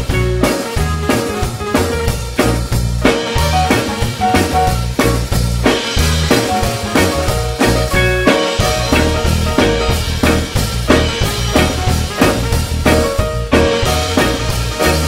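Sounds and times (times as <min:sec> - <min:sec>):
reggae band playing: 0:00.0 - 0:15.0.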